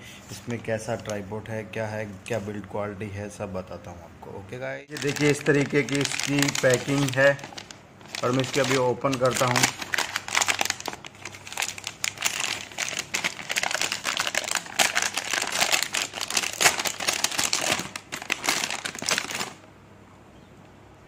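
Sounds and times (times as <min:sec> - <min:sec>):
paper tearing and crumpling: 0:04.9 - 0:19.6.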